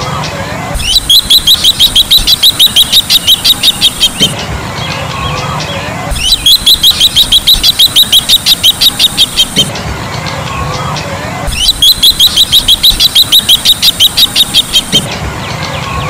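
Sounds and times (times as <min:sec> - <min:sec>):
bird rapid high-pitched calls: 0:00.8 - 0:09.7, 0:11.5 - 0:16.0.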